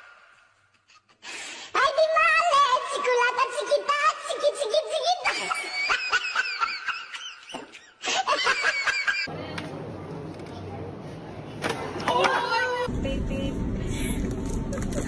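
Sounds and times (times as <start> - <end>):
high-pitched laughter: 4.8 - 9.3.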